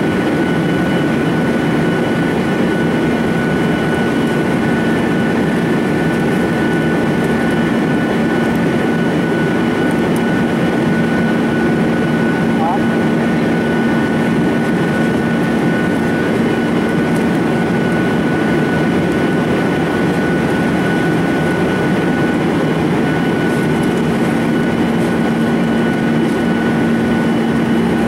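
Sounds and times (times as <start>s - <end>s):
airplane cabin drone: 0.0s - 28.0s
thin high whine: 12.3s - 13.1s.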